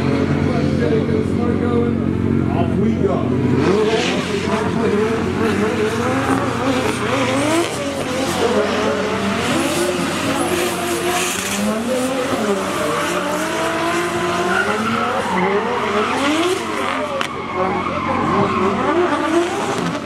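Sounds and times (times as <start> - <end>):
car engines revving: 0.0 - 20.0
tyres screeching: 9.2 - 20.0.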